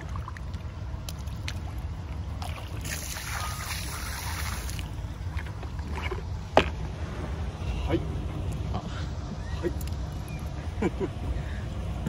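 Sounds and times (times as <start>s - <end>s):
water splashing onto sea: 0.0s - 5.5s.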